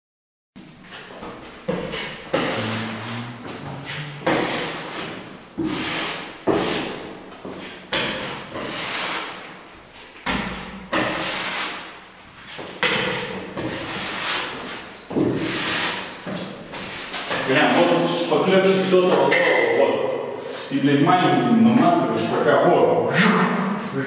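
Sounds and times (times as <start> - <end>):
putty knife scraping filler: 1.7 - 9.5, 10.4 - 12.0, 12.6 - 18.0.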